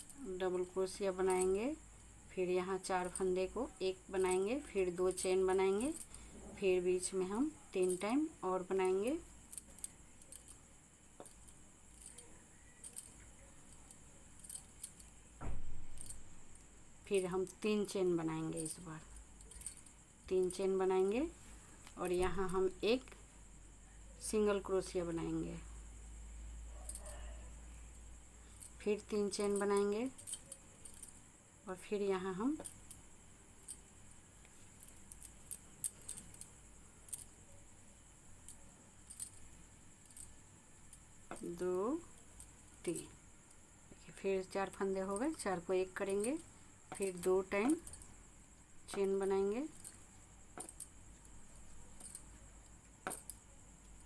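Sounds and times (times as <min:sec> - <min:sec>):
faint high hiss: 0:00.0 - 0:54.0
dull thump: 0:15.4 - 0:16.1.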